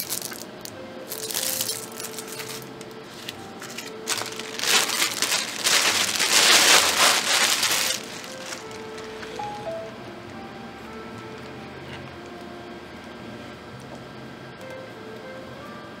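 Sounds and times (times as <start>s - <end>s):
plastic bag crinkling: 0.0s - 0.5s, 1.1s - 9.6s
soft background music: 0.0s - 16.0s.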